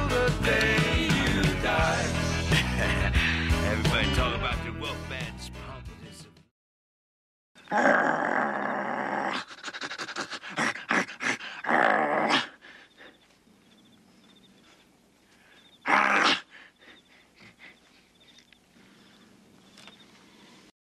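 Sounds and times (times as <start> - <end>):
heavy panting: 2.1 - 3.6, 9.3 - 11.7, 12.3 - 13.5, 14.5 - 19.4
growling: 7.7 - 13.2, 15.8 - 16.9.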